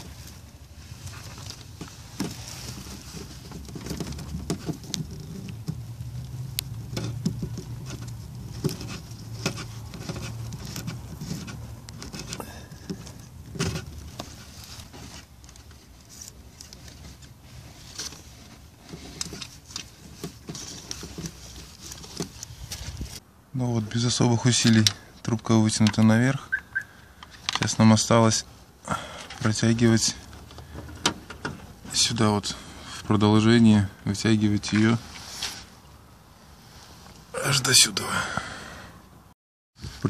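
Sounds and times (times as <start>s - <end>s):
rustling of wiring and hoses: 0.0s - 38.4s, 39.0s - 40.0s.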